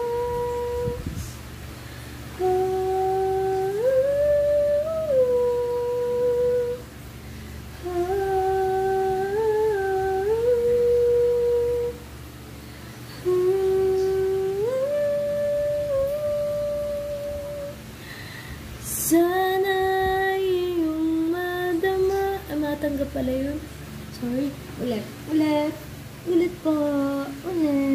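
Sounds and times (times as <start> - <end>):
woman humming: 0.0 - 1.3, 2.3 - 6.8, 7.8 - 12.0, 13.1 - 17.9, 24.2 - 27.9.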